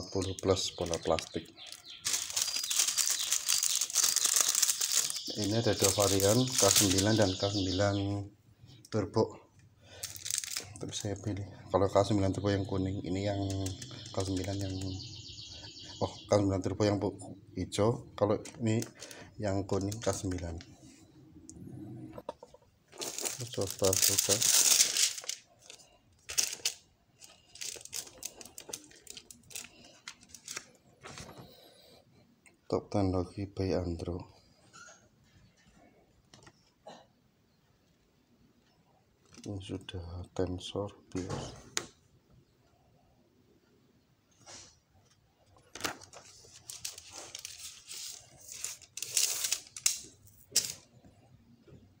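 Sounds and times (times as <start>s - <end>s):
packaging rustling and crinkling: 0.2s - 7.4s, 10.0s - 11.1s, 22.9s - 31.4s, 45.7s - 50.8s.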